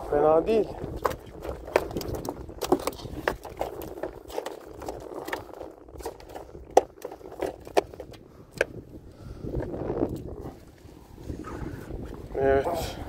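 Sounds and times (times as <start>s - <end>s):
fish knocking in inflatable boat: 0.9s - 8.7s.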